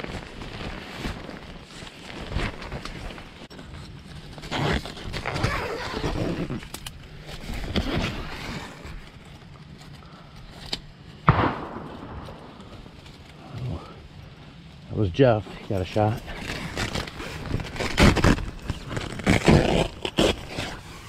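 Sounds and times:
gunshot with echo: 0:11.3 - 0:13.1.

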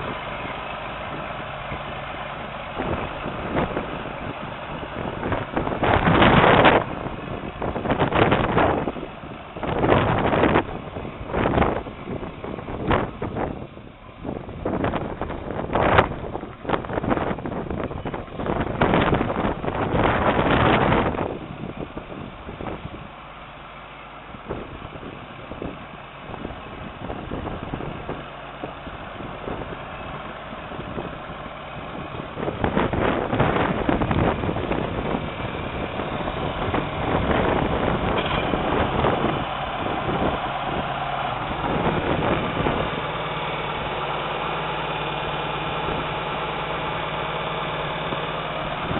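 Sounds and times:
tractor diesel engine running: 0:00.0 - 0:48.9.

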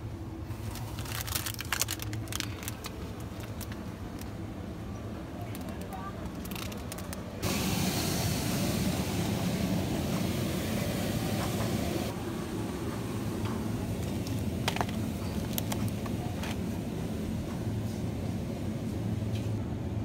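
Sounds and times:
steady hiss: 0:07.4 - 0:12.1.

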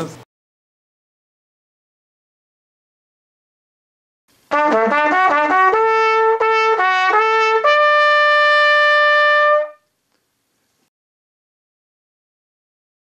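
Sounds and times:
trumpet fanfare: 0:04.5 - 0:09.8.

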